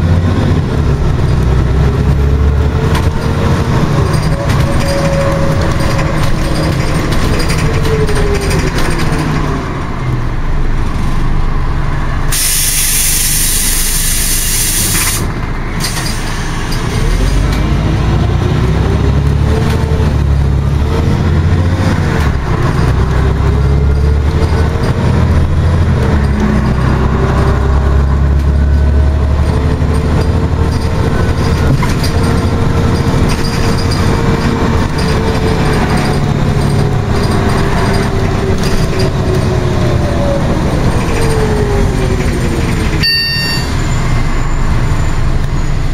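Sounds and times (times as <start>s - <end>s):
bus diesel engine rumble: 0.0s - 45.9s
compressed air hiss: 12.3s - 15.3s
gearbox whine: 42.3s - 45.9s.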